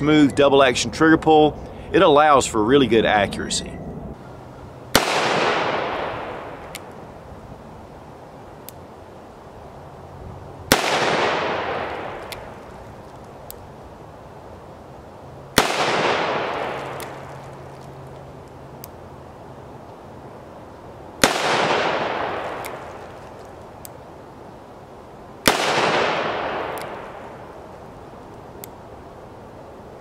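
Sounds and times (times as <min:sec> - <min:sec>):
revolver shots echoing: 0:04.9 - 0:06.9, 0:10.7 - 0:12.5, 0:15.6 - 0:17.4.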